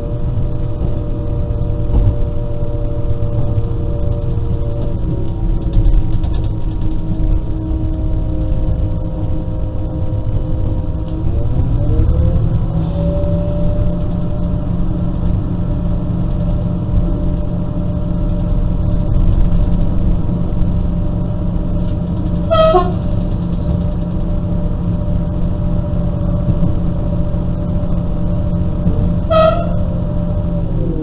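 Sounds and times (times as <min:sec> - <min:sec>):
railcar rumbling: 0:00.0 - 0:31.0
train horn blast: 0:22.4 - 0:23.1, 0:29.2 - 0:30.0.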